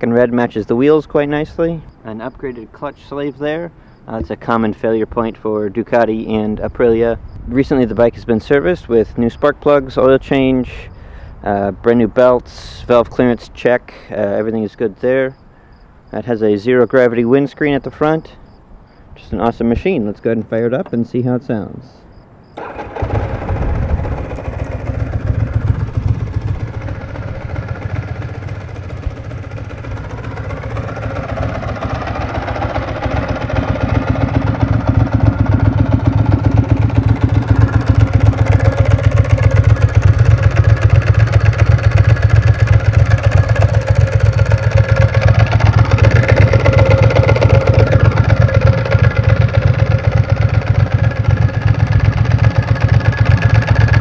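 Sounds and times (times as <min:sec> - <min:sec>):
motorcycle engine idling: 0:22.5 - 0:54.0.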